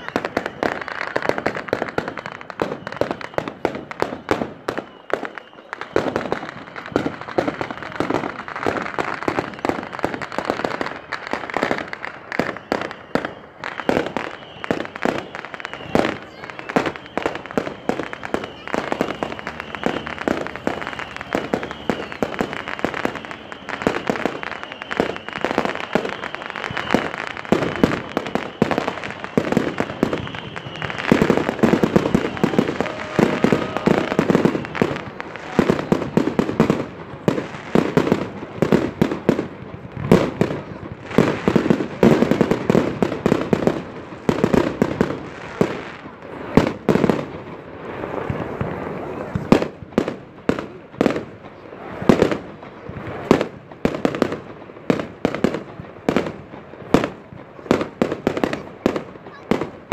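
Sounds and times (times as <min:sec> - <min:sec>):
fireworks bangs and crackles: 0:00.0 - 0:59.9.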